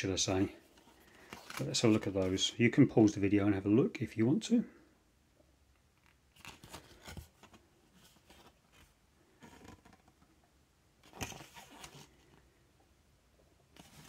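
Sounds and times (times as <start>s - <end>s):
paper card rustling and scraping: 0.6s - 2.4s, 6.0s - 10.1s, 11.0s - 12.4s, 13.8s - 14.0s.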